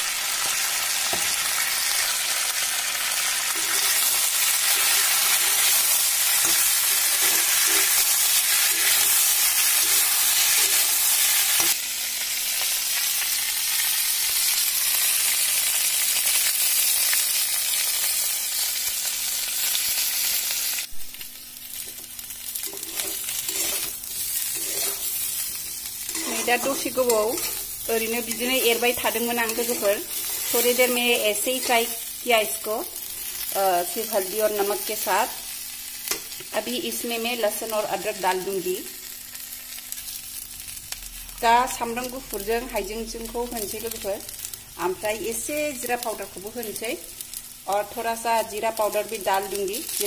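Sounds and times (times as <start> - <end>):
food sizzling in hot oil: 0.0 - 50.0
spatula stirring: 6.4 - 11.8, 22.6 - 30.8.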